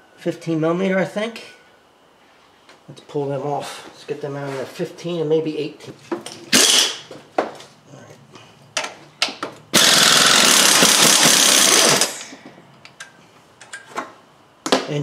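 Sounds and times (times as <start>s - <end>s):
impact wrench hammering: 9.8s - 12.3s.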